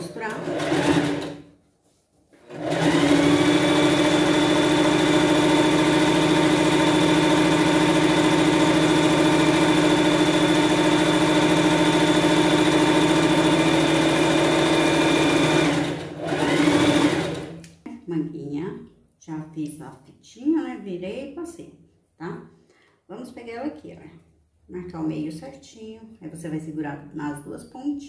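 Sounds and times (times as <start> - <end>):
electric sewing machine running: 0.0 - 1.4, 2.4 - 17.6.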